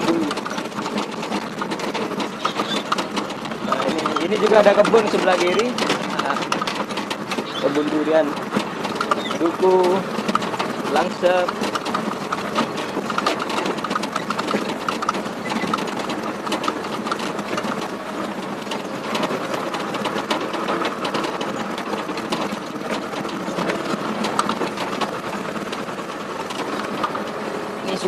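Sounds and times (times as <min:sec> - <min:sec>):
rattles and knocks: 0:00.0 - 0:28.0
truck engine running: 0:00.0 - 0:28.0.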